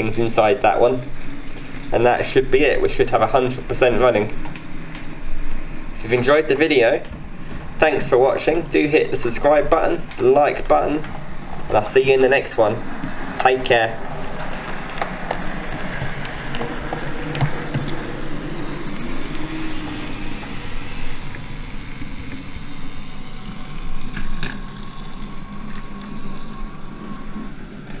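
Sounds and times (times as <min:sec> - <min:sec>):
thin steady whine: 0:00.0 - 0:28.0
model train running on track: 0:11.4 - 0:28.0.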